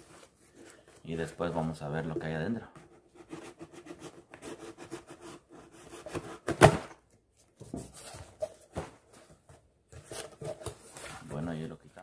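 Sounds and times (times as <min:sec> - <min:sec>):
knife cutting cardboard box: 0:02.8 - 0:07.0.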